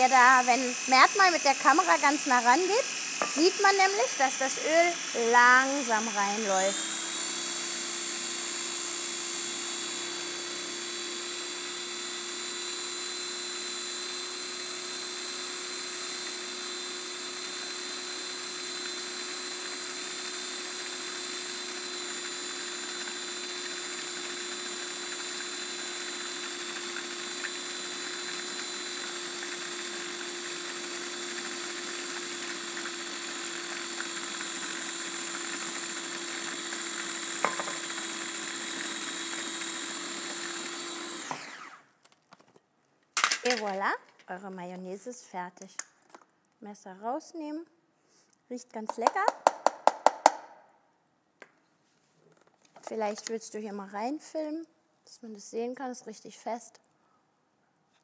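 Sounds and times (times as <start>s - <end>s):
food processor motor whining: 0.0s - 41.9s.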